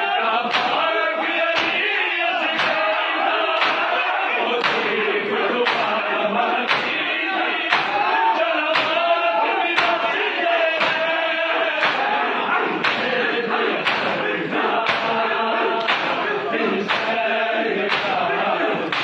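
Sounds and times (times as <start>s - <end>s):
men chanting a lament: 0.0s - 19.0s
hands slapping bare chests: 3.6s - 3.9s, 4.6s - 4.9s, 5.6s - 6.0s, 7.7s - 8.0s, 8.7s - 9.0s, 11.8s - 12.1s, 12.8s - 13.1s, 13.8s - 14.2s, 14.8s - 15.2s, 15.8s - 16.2s, 16.9s - 17.2s, 17.9s - 18.2s.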